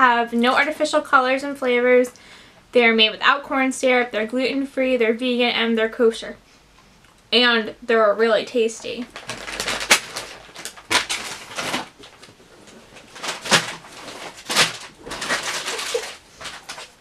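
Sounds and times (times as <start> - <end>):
candy wrappers rustling: 8.8 - 17.0.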